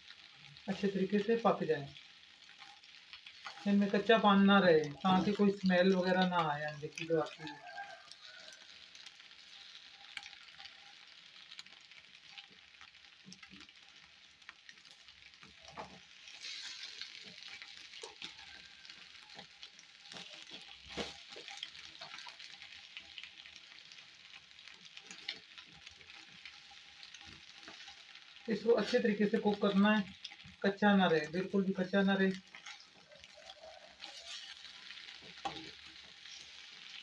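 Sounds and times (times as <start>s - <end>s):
eggs sizzling in a frying pan: 0.0s - 37.0s
spatula scraping and tapping pan: 19.3s - 22.3s, 32.5s - 36.6s.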